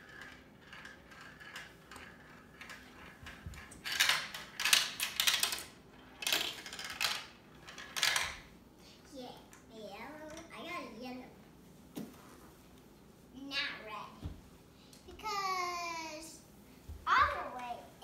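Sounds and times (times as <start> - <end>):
marbles rattling down plastic tracks: 0.0 - 8.4.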